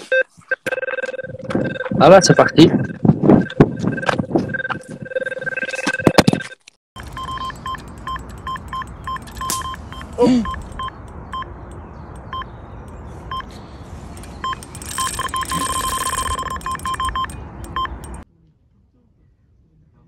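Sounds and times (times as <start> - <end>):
bite alarm beeping: 0.0 - 11.6, 13.3 - 13.5, 14.2 - 18.2.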